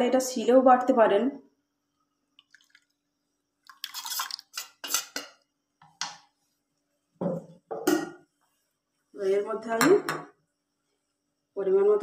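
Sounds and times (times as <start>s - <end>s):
metal spoon scraping steel jar: 3.8s - 5.3s.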